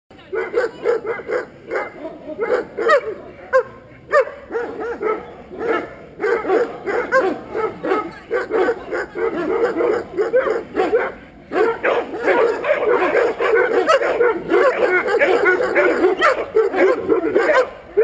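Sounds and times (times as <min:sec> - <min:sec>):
dog barking: 0:00.3 - 0:18.0.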